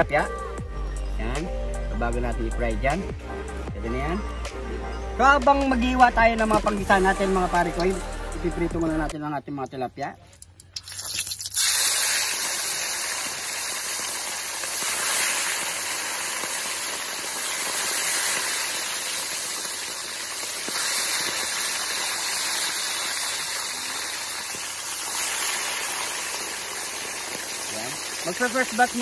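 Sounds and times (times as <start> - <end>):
fish deep-frying in hot oil: 10.4 - 29.0.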